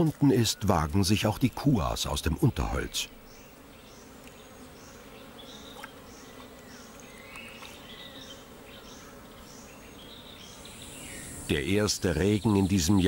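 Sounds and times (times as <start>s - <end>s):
steady insect buzz: 0.0s - 13.0s
short high insect chirp: 9.6s - 11.6s.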